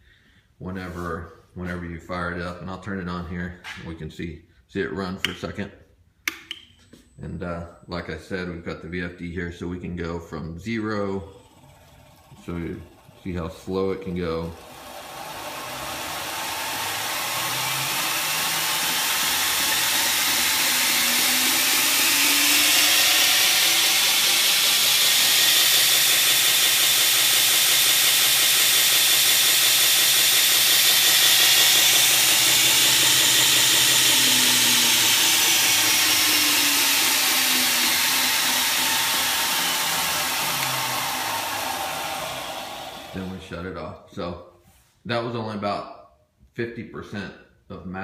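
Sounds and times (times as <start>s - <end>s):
belt grinder whining: 10.3s - 43.6s.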